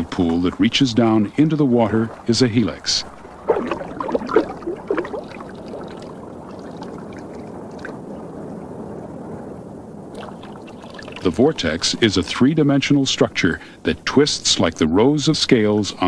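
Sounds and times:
sharp splash-like clicks: 0.0s - 8.0s, 10.1s - 11.4s
water rushing and gurgling: 0.0s - 16.0s.

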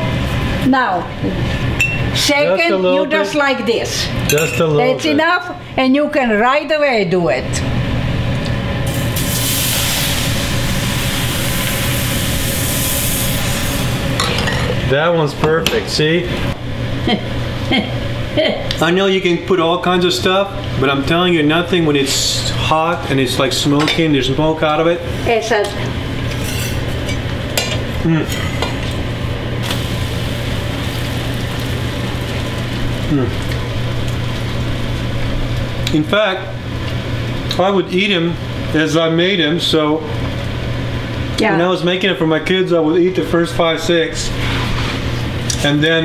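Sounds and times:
batter sizzling in a pan: 8.9s - 14.2s, 29.6s - 36.5s
knife scraping a pan: 26.3s - 26.8s, 44.4s - 45.2s.

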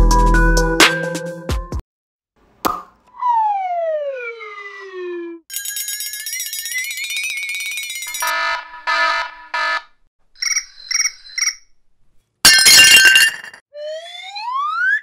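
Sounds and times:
rising whistle glide: 3.2s - 5.4s.

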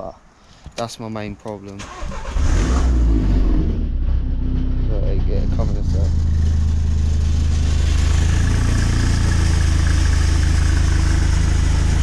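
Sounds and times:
exhaust rattling and buzzing: 2.3s - 12.0s
car engine idling: 3.9s - 12.0s.

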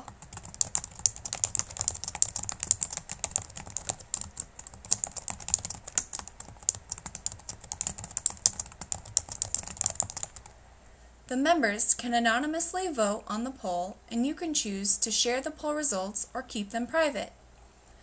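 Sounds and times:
typing on computer keyboard: 0.0s - 10.5s.

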